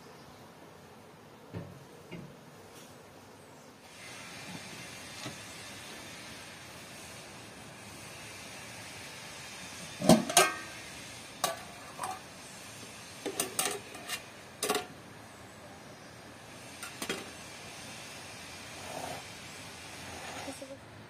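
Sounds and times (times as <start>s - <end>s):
metal pot and lid clanking: 10.0s - 10.8s, 11.4s - 12.2s, 13.3s - 14.9s.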